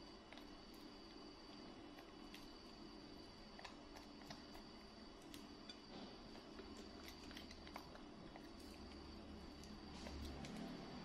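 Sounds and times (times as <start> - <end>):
faint room hum: 0.0 - 11.0.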